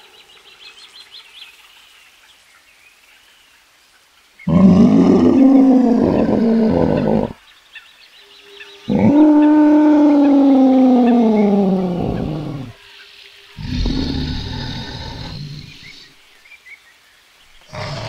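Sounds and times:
dinosaur roar: 4.5 - 7.4, 8.9 - 12.8, 13.6 - 16.2, 17.7 - 18.0.

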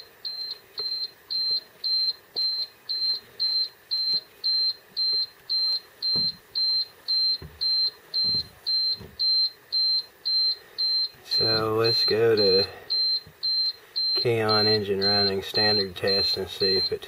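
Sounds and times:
electronic warning beeper: 0.0 - 17.0.

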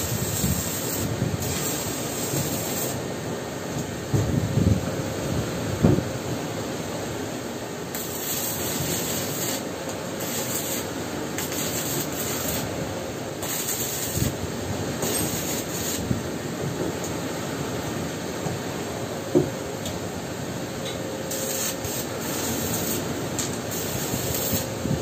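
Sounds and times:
welding arc crackling and hissing: 0.0 - 3.1, 7.9 - 16.2, 21.3 - 25.0
steady background noise: 0.0 - 25.0.

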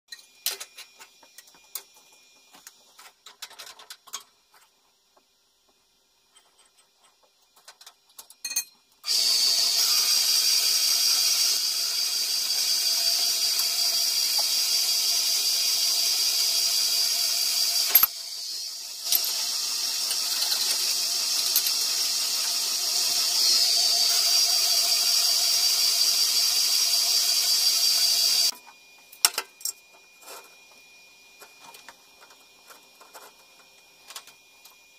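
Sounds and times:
band saw cutting steel: 9.0 - 28.5.

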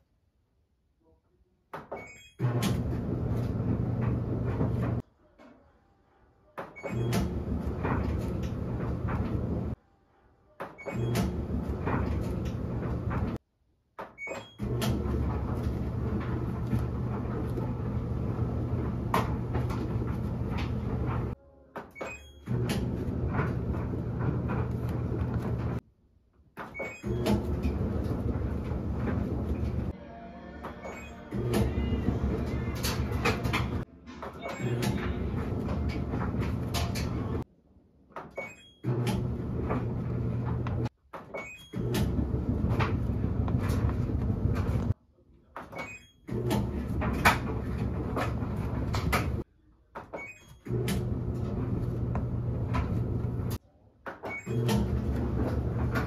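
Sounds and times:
washing machine running: 2.4 - 5.0, 6.8 - 9.8, 10.9 - 13.4, 14.6 - 21.4, 22.4 - 25.8, 26.8 - 30.0, 30.8 - 37.5, 38.8 - 40.9, 41.7 - 45.0, 46.3 - 49.4, 50.6 - 53.6, 54.4 - 56.0.

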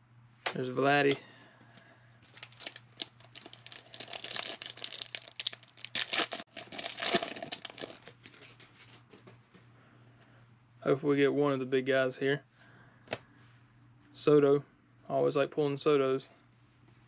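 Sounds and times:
wrapper tearing and crinkling: 2.3 - 8.2.

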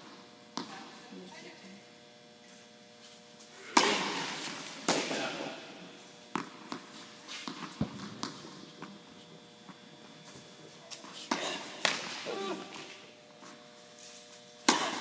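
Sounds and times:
tennis ball bouncing on court: 0.5 - 0.9, 6.3 - 9.0
racket striking tennis ball: 3.7 - 5.5, 11.3 - 13.0, 14.6 - 15.0.

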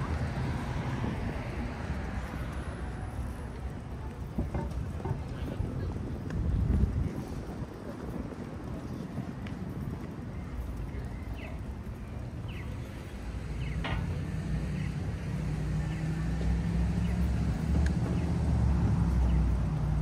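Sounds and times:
vehicle engine rumbling: 0.0 - 20.0.

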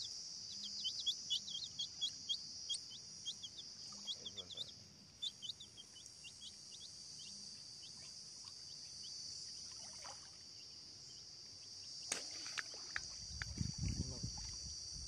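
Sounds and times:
baby chicks peeping: 0.0 - 9.2.

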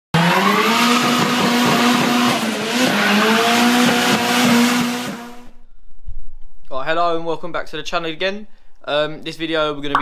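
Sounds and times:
car engine: 0.2 - 5.6.

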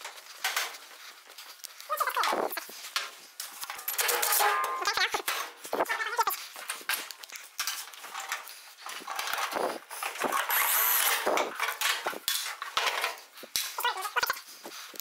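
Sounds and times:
metal panels clanking: 3.6 - 5.6
power drill driving screws: 10.2 - 11.5.

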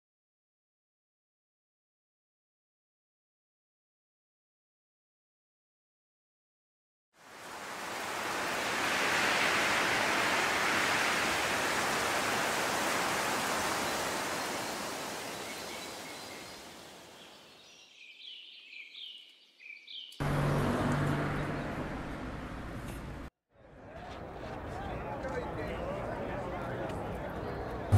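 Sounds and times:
wind-like noise: 7.2 - 17.5
street ambience: 20.2 - 27.9.

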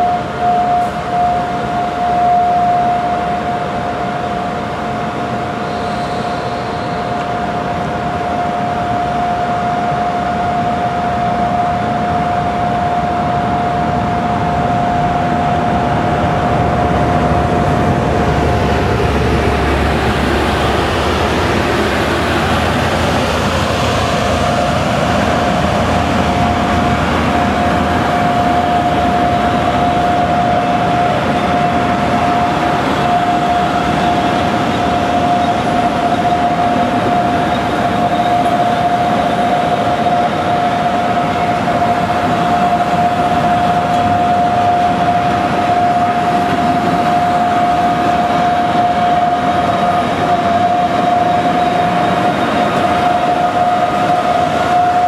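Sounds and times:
high-pitched whine: 5.4 - 55.0
freight train wagons rolling: 16.4 - 55.0.

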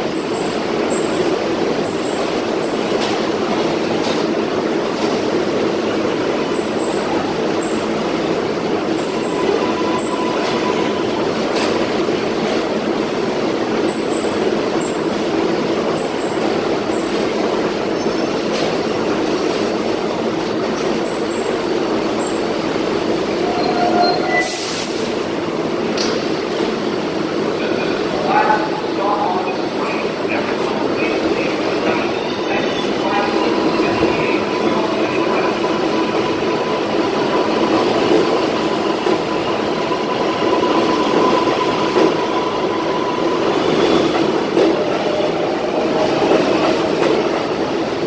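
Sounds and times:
subway train equipment humming: 0.0 - 48.0.

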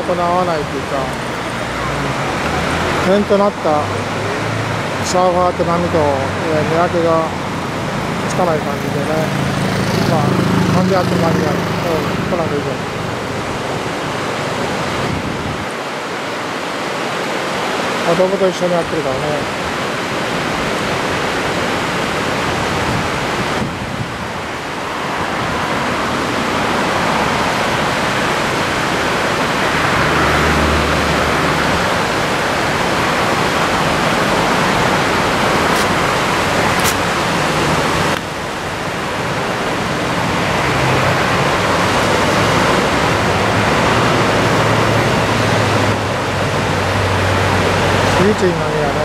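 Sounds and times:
surf breaking on sandy beach: 19.4 - 48.2.

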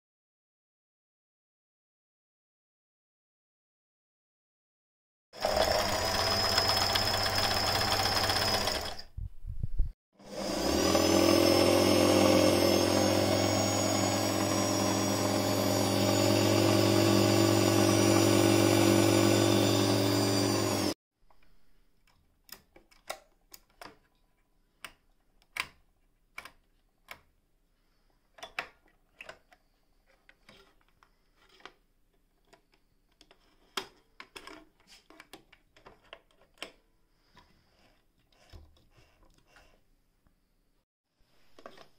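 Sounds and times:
sewing machine whirring: 5.4 - 9.2, 10.2 - 21.0.

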